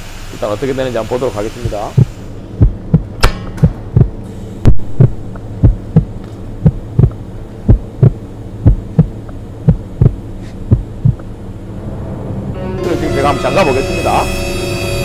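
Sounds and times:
constant low hum: 0.0s - 15.0s
heartbeat double thump: 2.0s - 11.3s.

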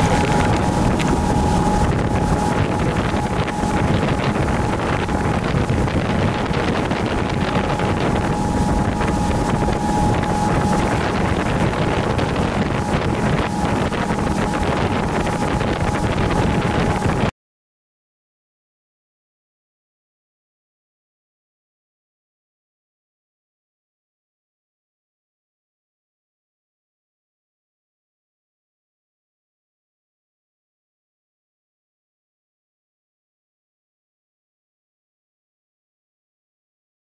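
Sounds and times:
thin steady whine: 0.0s - 17.2s
boat engine running: 0.0s - 17.3s
water rushing: 0.0s - 17.3s
wind buffeting microphone: 0.0s - 17.3s.

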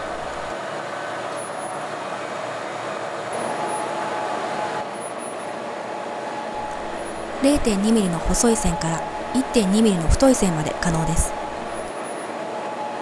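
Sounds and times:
faint high whines: 0.0s - 0.5s, 6.6s - 11.9s
laser engraver whirring: 0.0s - 0.5s, 6.6s - 11.9s.

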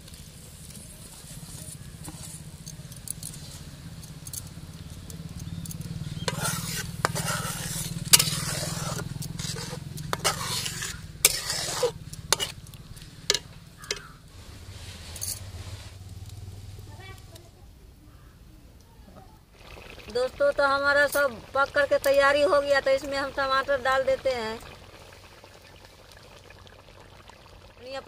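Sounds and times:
spatula scraping a metal pan: 6.0s - 14.1s
spatula knocking pan side: 6.2s - 12.6s, 13.2s - 14.2s.

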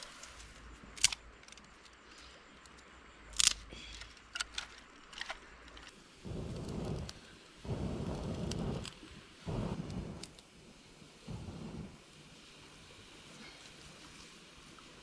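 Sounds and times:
twigs snapping: 2.6s - 6.0s
low rumbling noise: 6.2s - 13.3s.

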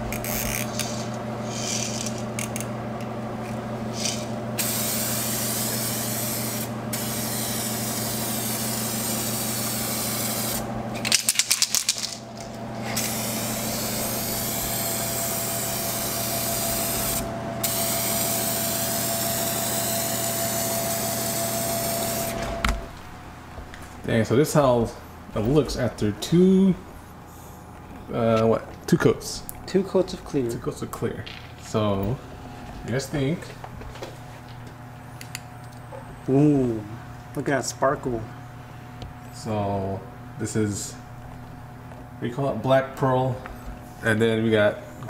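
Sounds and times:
steady low hum: 0.0s - 45.0s
aerosol can spraying: 0.3s - 2.2s, 3.9s - 10.6s
aerosol can rattling when shaken: 11.0s - 12.5s.

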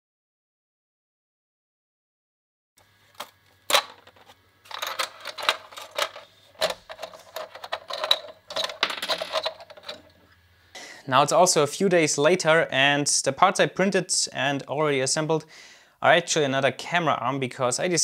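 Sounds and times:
plastic parts clicking and cracking: 3.1s - 10.1s
loose plastic pieces rattling: 3.2s - 10.1s.

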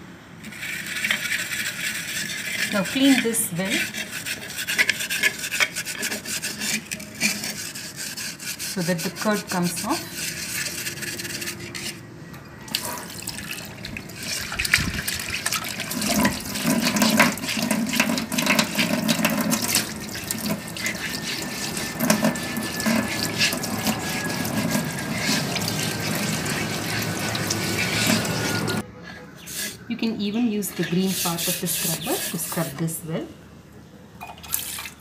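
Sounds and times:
scrubbing a clay pot: 0.5s - 12.0s, 13.3s - 28.8s, 30.6s - 32.9s
tap water running into sink: 14.2s - 28.8s.

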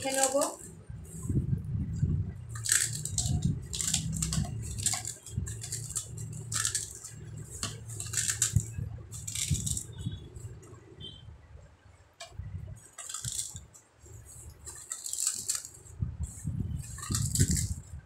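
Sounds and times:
dough scraping and crunching in bowl: 2.3s - 10.9s, 12.8s - 18.0s.

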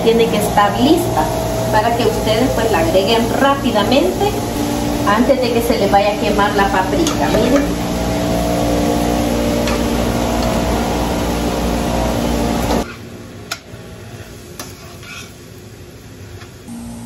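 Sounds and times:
food frying in a pan: 0.0s - 13.0s
steady hum: 0.0s - 17.0s.

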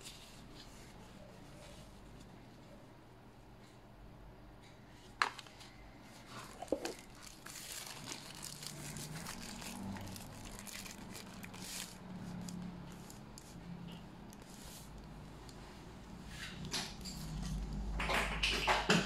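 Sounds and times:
plastic bag crinkling: 6.2s - 13.5s.

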